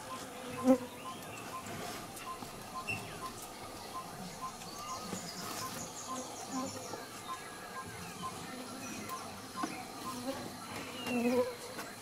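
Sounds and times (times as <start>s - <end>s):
insects buzzing and chirping: 0.0s - 12.0s.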